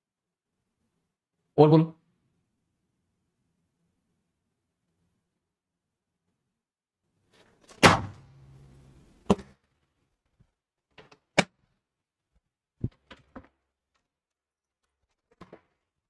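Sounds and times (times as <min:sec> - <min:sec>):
knocks and clatters: 0:14.8 - 0:16.0.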